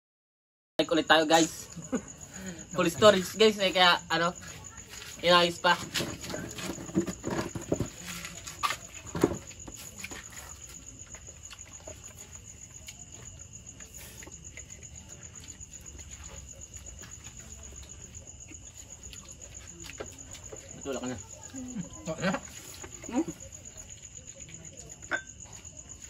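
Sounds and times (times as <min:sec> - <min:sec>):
crickets trilling: 0:00.8 - 0:26.0
knocks and clatters: 0:05.8 - 0:08.1.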